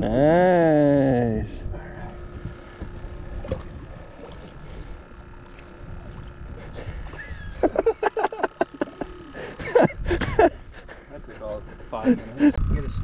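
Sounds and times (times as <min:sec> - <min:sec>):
faint steady hum: 0:00.0 - 0:13.0
wind: 0:00.0 - 0:13.0
small waves against boat hull: 0:02.4 - 0:07.6.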